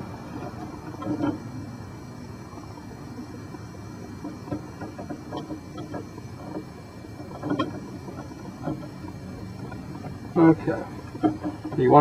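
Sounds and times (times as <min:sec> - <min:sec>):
low background noise: 0:00.0 - 0:12.0.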